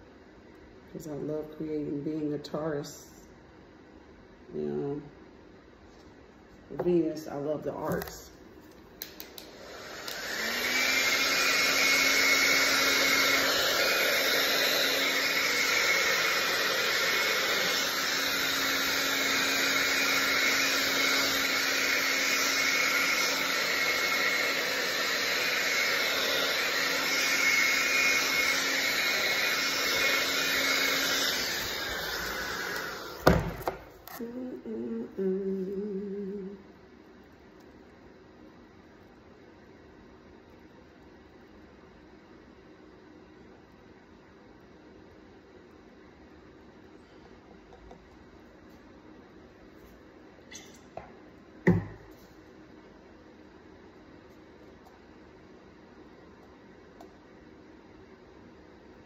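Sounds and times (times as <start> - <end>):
hair dryer blowing: 9.0 - 36.5.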